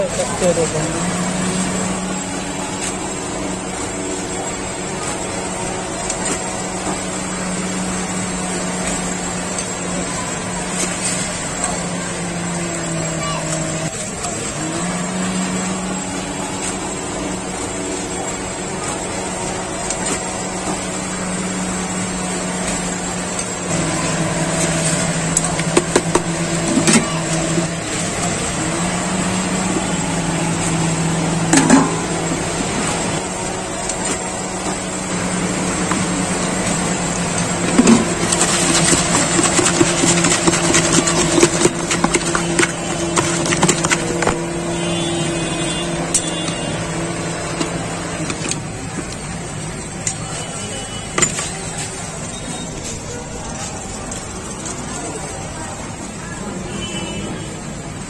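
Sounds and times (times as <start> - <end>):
engine hum: 0.0 - 56.7
spoon scraping plastic bucket: 37.4 - 44.6.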